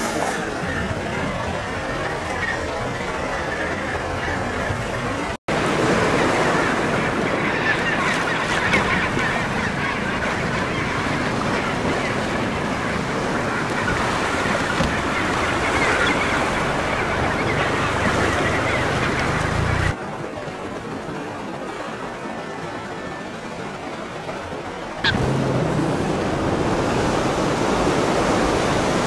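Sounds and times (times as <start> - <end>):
penguins calling: 0.0 - 20.5
surf washing: 0.0 - 29.0.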